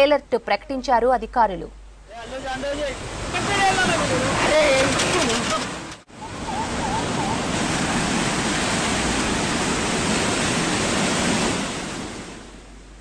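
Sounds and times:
floodwater rushing: 0:02.1 - 0:13.0.

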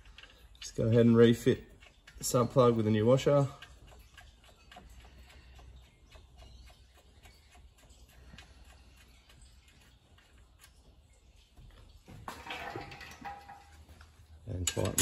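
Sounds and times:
light ticks and clicks: 0:00.0 - 0:11.8.

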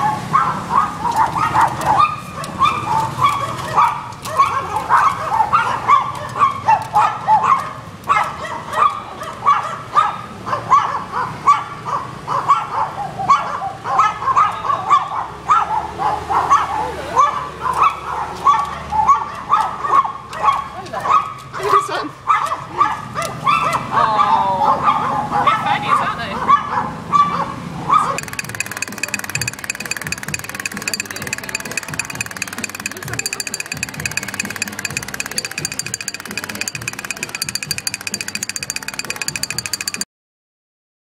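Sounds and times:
small dogs yapping: 0:00.0 - 0:28.2.

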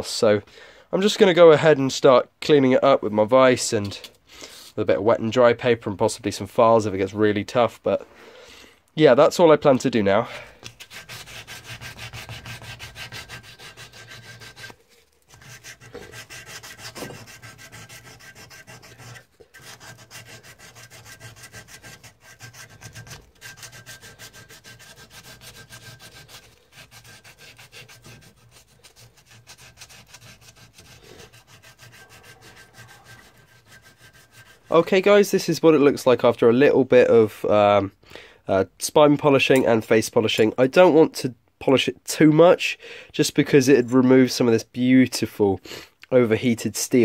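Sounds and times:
abrasive paper rubbing steel: 0:10.7 - 0:35.1.

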